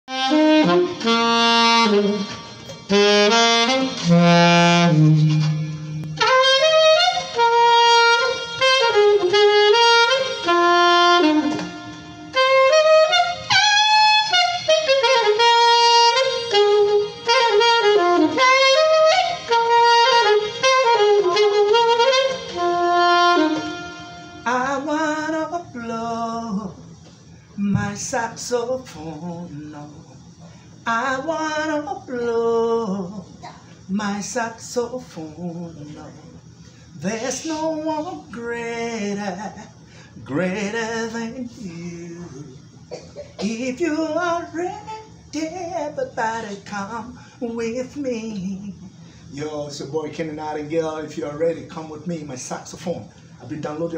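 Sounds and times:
saxophone melody: 0.1 - 27.0, 37.1 - 39.8.

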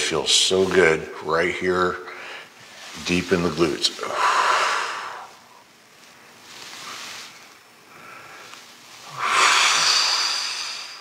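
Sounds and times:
person breathing deeply: 4.0 - 5.6, 6.6 - 11.0.

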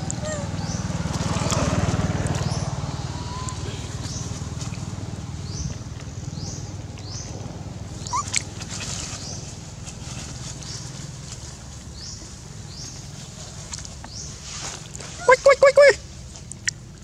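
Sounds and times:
monkey squeak: 0.0 - 0.6, 8.1 - 8.4.

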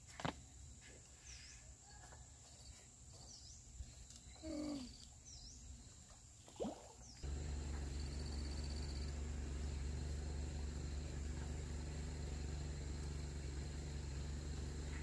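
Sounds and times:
high insect drone: 7.2 - 15.0.

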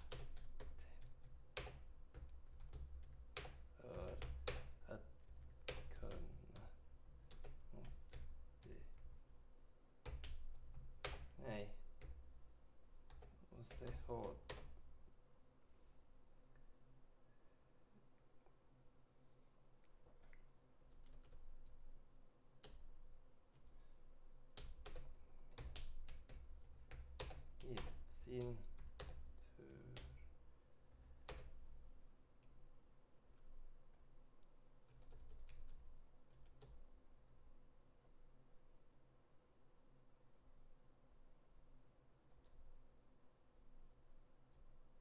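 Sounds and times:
typing on computer keyboard: 0.0 - 9.1, 10.0 - 12.2, 13.1 - 14.8, 20.9 - 21.8, 24.5 - 30.2, 30.9 - 31.7, 34.8 - 36.8.

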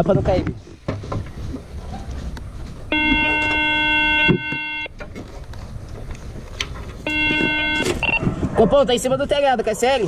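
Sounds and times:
vehicle horn: 2.9 - 4.9, 7.0 - 8.1.

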